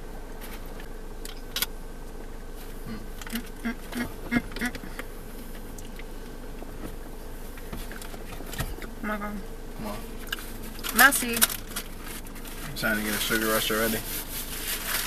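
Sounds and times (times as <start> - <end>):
short hummed voice sounds: 2.8 - 5.0, 8.9 - 10.2.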